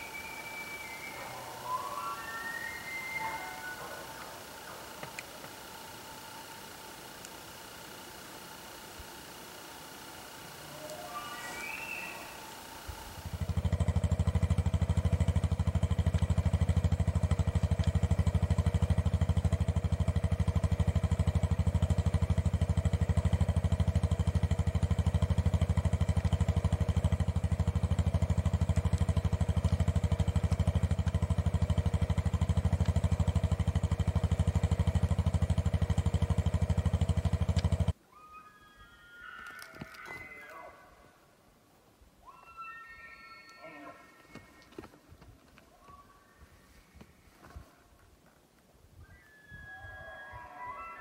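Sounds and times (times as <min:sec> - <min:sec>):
engine idling: 0:00.0 - 0:38.0.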